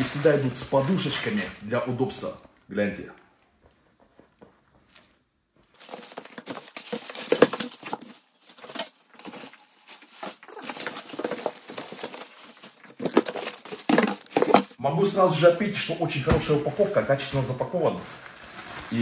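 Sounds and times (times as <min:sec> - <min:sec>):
plastic wrapping crinkling: 0:00.0 - 0:02.4, 0:05.0 - 0:14.8, 0:16.2 - 0:19.0.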